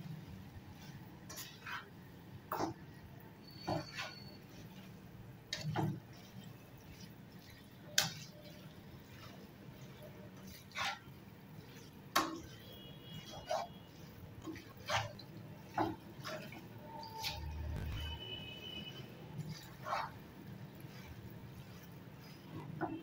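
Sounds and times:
utensil tapping pan: 5.5s - 18.2s.

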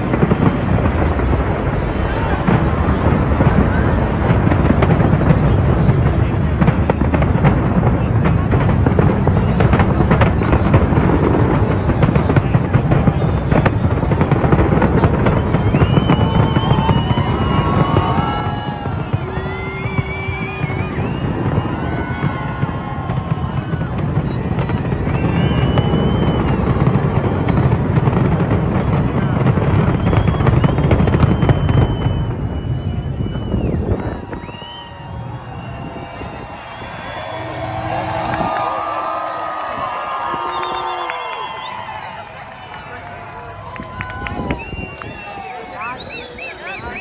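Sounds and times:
rumble of explosions: 0.0s - 45.3s
fireworks crackling and popping: 0.0s - 47.0s
high steady whistle: 15.0s - 27.0s, 29.2s - 43.0s, 43.8s - 47.0s.

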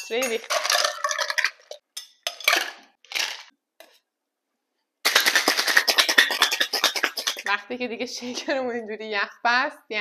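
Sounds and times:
ice clattering into metal shaker: 0.0s - 3.5s, 5.1s - 7.5s
ice rattling in shaken shaker: 5.1s - 7.6s.

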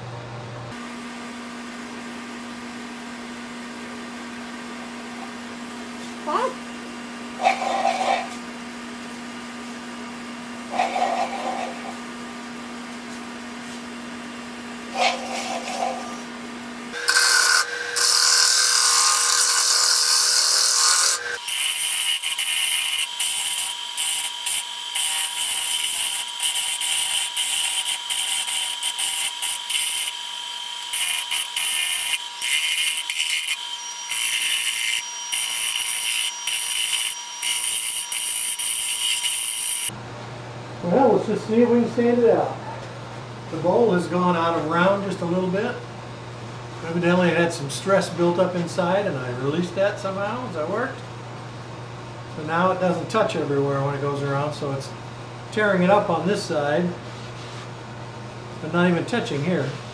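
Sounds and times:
turning tool scraping wood: 17.0s - 30.2s, 30.8s - 39.9s
wood lathe motor whine: 17.0s - 40.0s.

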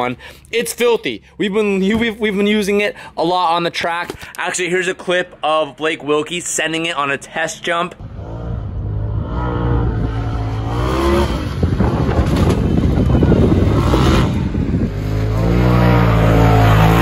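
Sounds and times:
engine revving hard: 8.0s - 12.6s, 13.2s - 17.0s.

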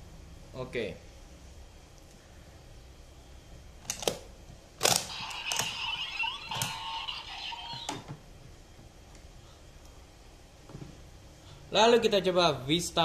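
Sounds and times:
electronic sound effect from toy: 5.0s - 8.1s.

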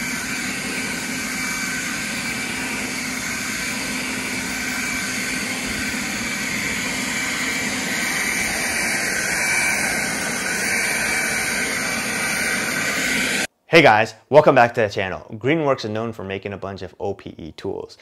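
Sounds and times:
leaf blower running: 0.0s - 13.5s.

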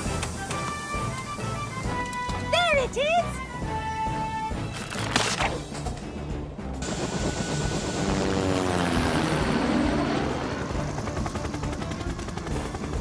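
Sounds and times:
helicopter rotor chopping: 6.8s - 13.0s.

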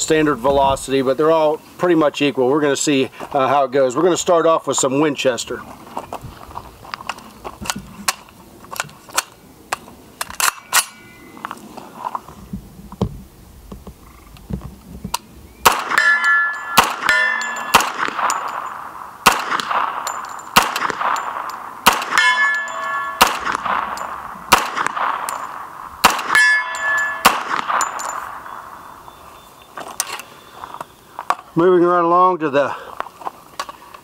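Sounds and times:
carbine gunshots: 15.6s - 28.8s
steel targets ringing: 15.7s - 24.4s, 25.0s - 29.1s.

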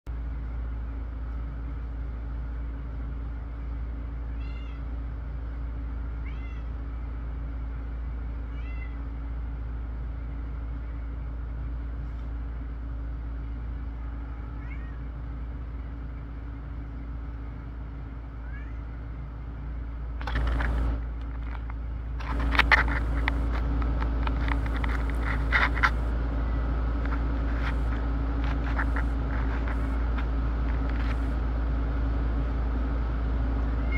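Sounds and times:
steady low hum: 0.1s - 33.9s
cat meowing: 4.3s - 4.9s, 6.2s - 6.8s, 8.5s - 9.0s, 14.0s - 15.2s, 18.4s - 19.0s
rustling and scraping: 11.9s - 12.4s, 20.1s - 26.2s, 26.9s - 31.4s.

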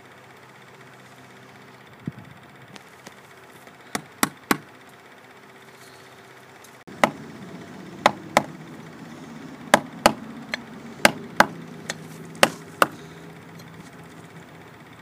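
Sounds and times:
mallet striking caulking iron: 4.0s - 4.7s, 7.0s - 7.2s, 8.0s - 8.5s, 11.0s - 13.0s.

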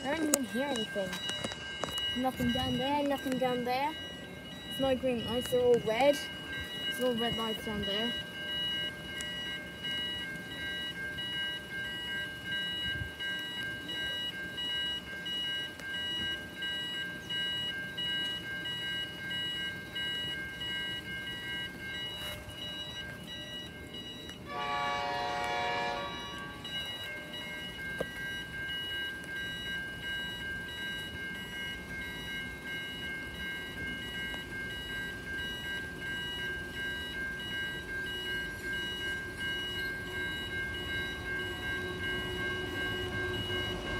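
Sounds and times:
level crossing bells ringing: 0.0s - 43.9s
train horn: 24.5s - 26.6s, 41.1s - 43.9s.

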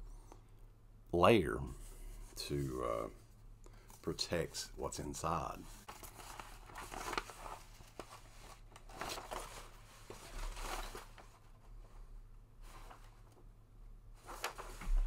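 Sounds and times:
paper rustling and crinkling: 5.7s - 12.0s, 14.2s - 15.0s.

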